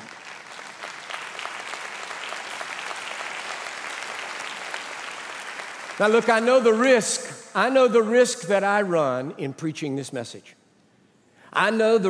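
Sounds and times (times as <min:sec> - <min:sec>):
crowd applauding: 0:00.0 - 0:06.5.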